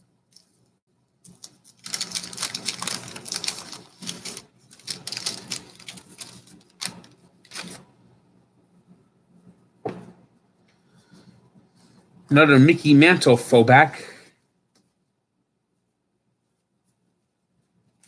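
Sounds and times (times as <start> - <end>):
paper wrapper crinkling and tearing: 1.2 - 7.9.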